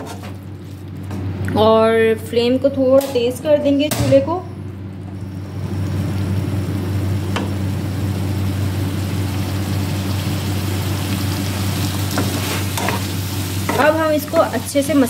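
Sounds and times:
low hum: 0:00.4 - 0:12.0
vegetables sizzling in hot oil: 0:05.2 - 0:15.0.

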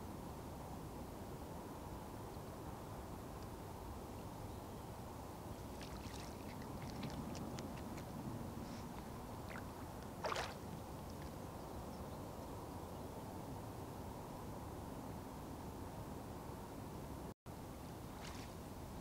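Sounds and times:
distant traffic hum: 0:05.1 - 0:12.8
otter splashing in water: 0:05.7 - 0:08.1, 0:09.5 - 0:11.3.

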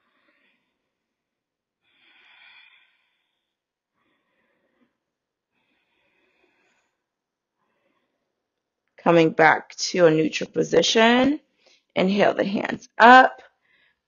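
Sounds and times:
soft slow breathing: 0:00.0 - 0:08.5, 0:13.4 - 0:14.0.

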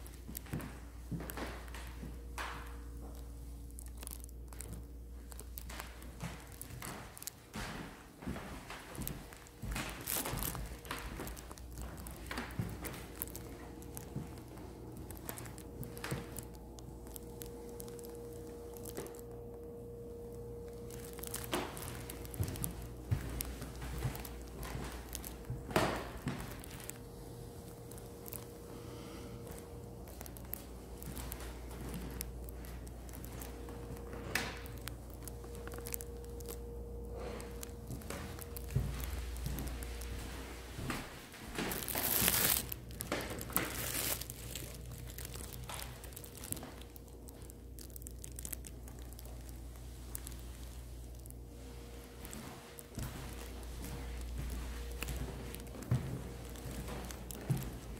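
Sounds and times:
faint hum: 0:00.0 - 0:57.9
rustling crinkling: 0:00.0 - 0:57.9
footsteps on hardwood floor: 0:05.7 - 0:16.6, 0:20.8 - 0:28.5, 0:29.5 - 0:44.2, 0:51.8 - 0:57.9.

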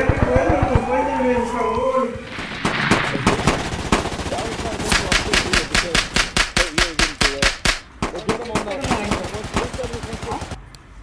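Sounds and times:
rapid machine-gun burst: 0:02.3 - 0:10.6
single gunshots: 0:02.3 - 0:10.6
person speaking: 0:03.1 - 0:10.6.

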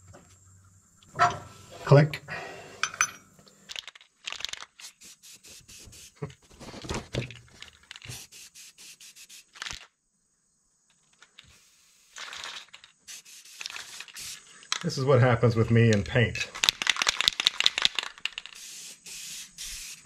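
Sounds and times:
spray can rattling: 0:03.7 - 0:09.9, 0:10.9 - 0:15.0, 0:15.9 - 0:20.0
spray can hissing: 0:04.8 - 0:06.2, 0:07.9 - 0:09.9, 0:11.3 - 0:14.6, 0:16.8 - 0:20.0.

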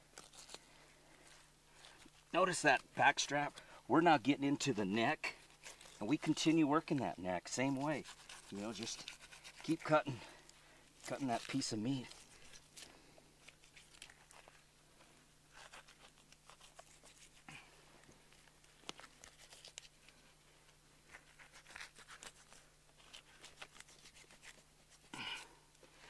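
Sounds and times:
knife cutting meat: 0:07.6 - 0:09.9.

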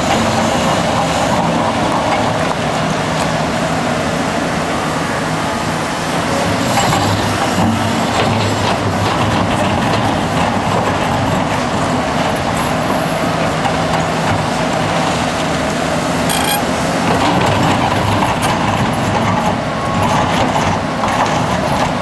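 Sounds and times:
excavator diesel engine under load: 0:00.0 - 0:22.0
high-pitched screech: 0:16.3 - 0:16.7.

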